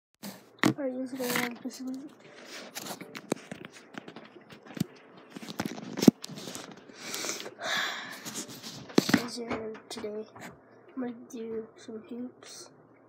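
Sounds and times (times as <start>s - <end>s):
phone handling rubbing and scraping: 0.2s - 6.9s, 8.2s - 9.4s.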